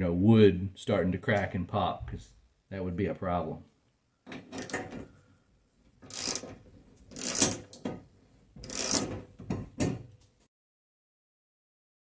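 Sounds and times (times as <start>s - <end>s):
socket ratchet clicking: 6.1s - 6.5s, 7.1s - 7.8s, 8.6s - 9.1s.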